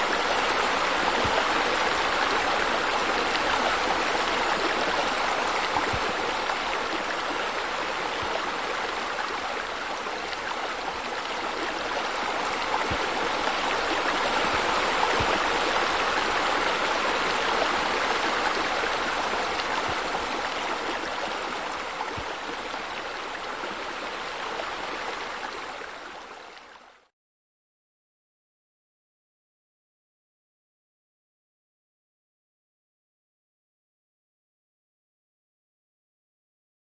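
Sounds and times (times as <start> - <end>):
rushing splashing water: 0.0 - 26.9.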